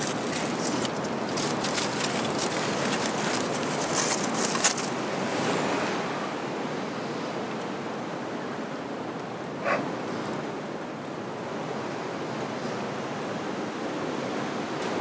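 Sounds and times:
aluminium foil crinkling: 0:00.0 - 0:05.0
wind rushing through trees: 0:00.0 - 0:15.0.

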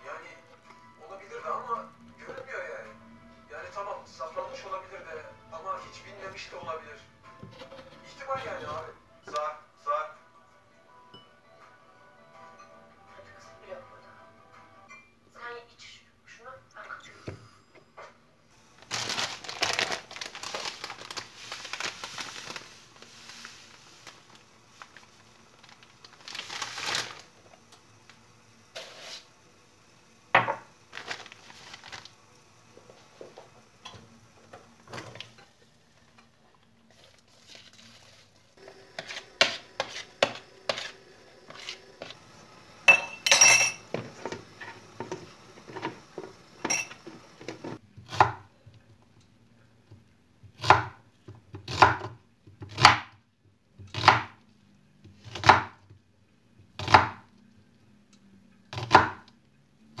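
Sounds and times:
knife slicing on cutting board: 0:38.9 - 0:41.8.

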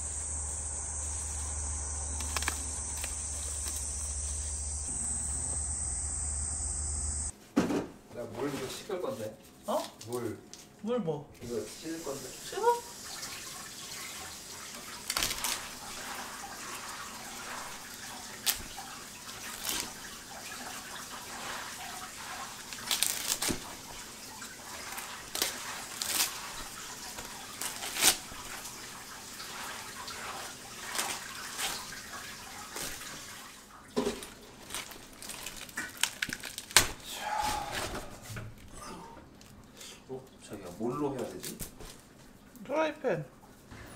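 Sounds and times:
tap water running: 0:11.5 - 0:35.0.

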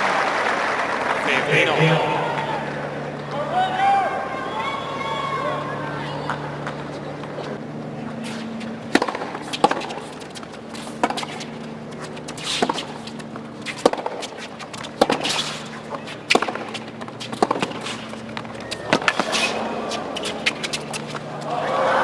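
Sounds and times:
tennis ball hit with racquet: 0:08.3 - 0:21.2.

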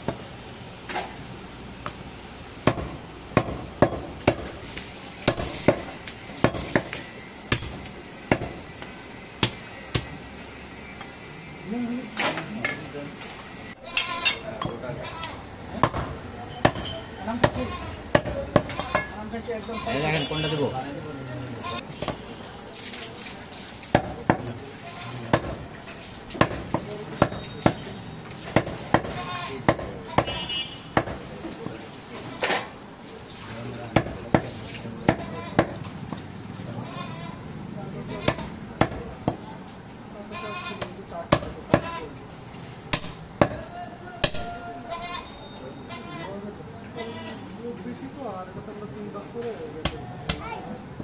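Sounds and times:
cleaver chopping meat and bone: 0:02.6 - 0:04.6, 0:05.2 - 0:08.8, 0:09.4 - 0:10.2, 0:15.7 - 0:19.0, 0:23.9 - 0:24.5, 0:25.3 - 0:25.6, 0:26.3 - 0:31.3, 0:33.9 - 0:36.3, 0:38.3 - 0:39.4, 0:40.8 - 0:41.9, 0:42.9 - 0:44.5, 0:49.8 - 0:50.5.

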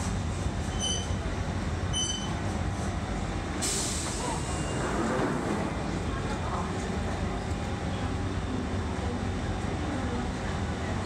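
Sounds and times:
train rumbling to a stop: 0:00.0 - 0:11.0
hiss of air: 0:03.6 - 0:04.6.

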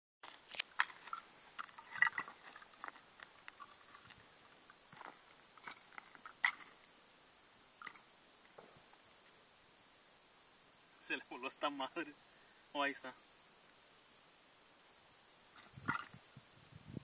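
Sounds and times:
soft clicks and crunching: 0:00.2 - 0:06.9.

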